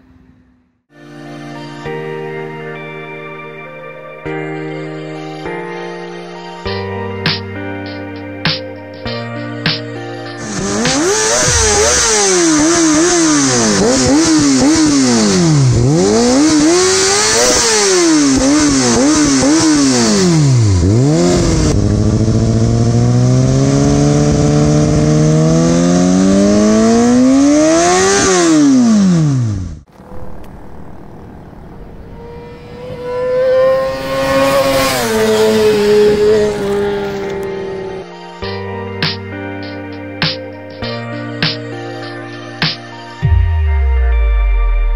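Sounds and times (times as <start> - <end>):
motorcycle pulling along road: 0.0 - 0.8, 10.4 - 38.2
motorcycle engine revving: 10.4 - 38.0.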